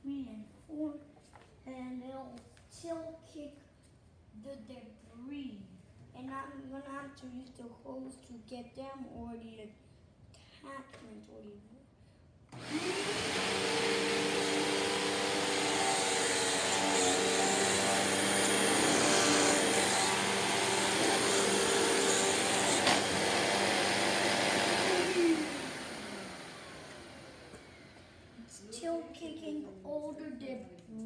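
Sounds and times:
vacuum cleaner motor running: 0:12.6 - 0:28.4.

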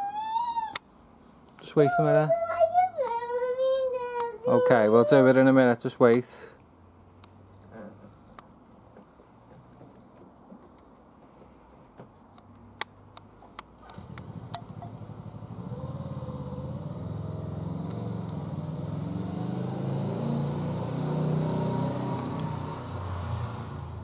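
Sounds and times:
motor engine running: 0:13.8 - 0:24.0.

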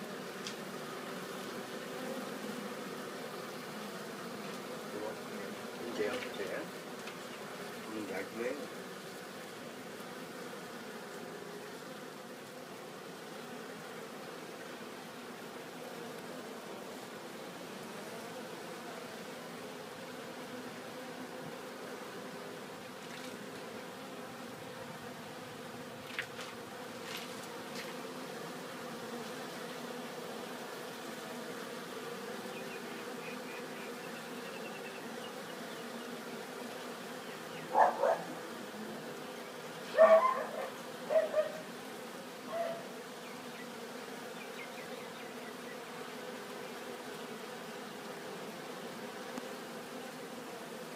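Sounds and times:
honeybees buzzing: 0:00.0 - 0:50.9
dog barking: 0:37.7 - 0:38.4, 0:39.9 - 0:41.7, 0:42.5 - 0:42.9.

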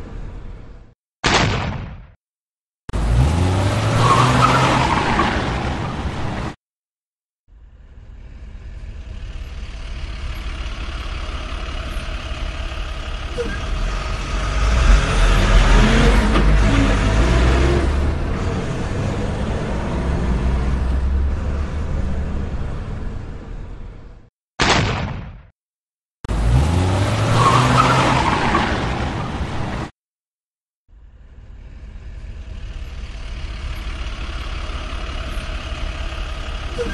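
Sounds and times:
vehicle engine deep rumble: 0:07.5 - 0:24.3, 0:30.9 - 0:36.9.

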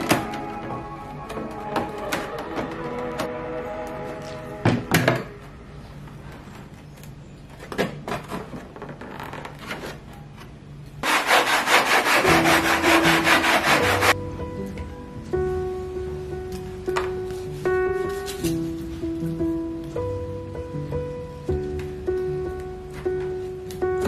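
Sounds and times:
soft background music: 0:00.0 - 0:07.4, 0:11.0 - 0:24.0
sanding block rubbing foam board: 0:11.0 - 0:14.2.

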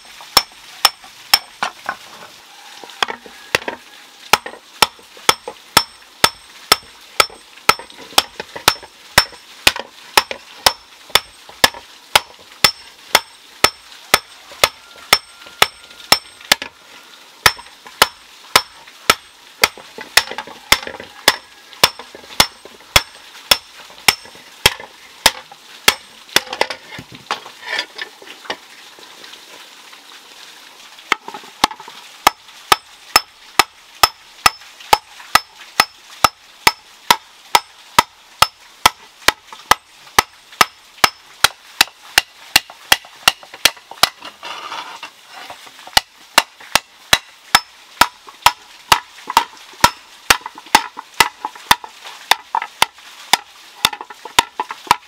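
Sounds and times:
hammer beating iron on anvil: 0:04.3 - 0:16.3, 0:20.2 - 0:24.3.

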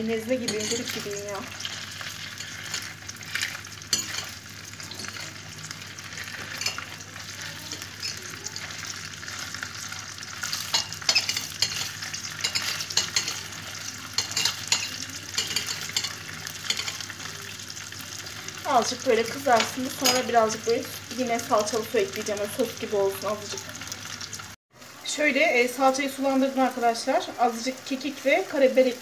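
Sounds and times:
sausages sizzling in a pan: 0:00.0 - 0:29.0
utensil clicking and scraping pan: 0:00.5 - 0:05.4, 0:06.0 - 0:17.1.

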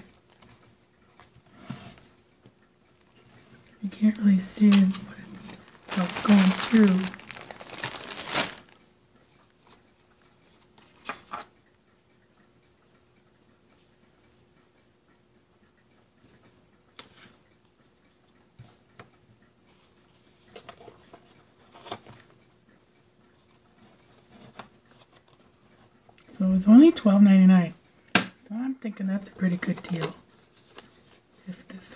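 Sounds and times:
plastic bag crinkling: 0:04.4 - 0:08.8
paper rustling and tapping: 0:04.6 - 0:08.8.

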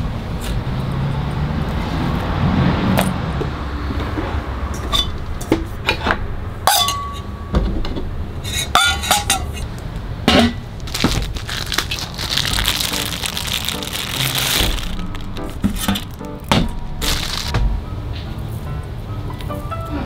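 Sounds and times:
steel bowls clinking on metal: 0:06.7 - 0:07.3, 0:08.6 - 0:09.6.

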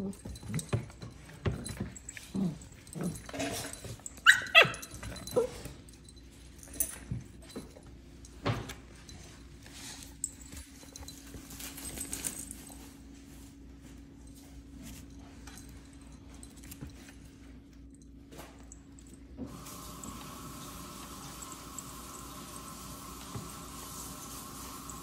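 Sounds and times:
puppies yipping and barking: 0:04.2 - 0:05.6.

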